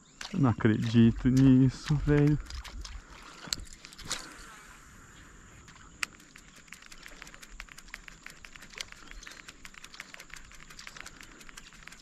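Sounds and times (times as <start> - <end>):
fishing reel clicking: 5.7 - 12.0.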